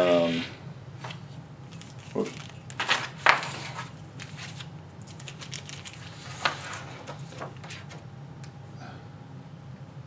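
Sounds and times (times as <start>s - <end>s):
low steady hum: 0.0s - 10.0s
paper rustling: 1.0s - 8.0s.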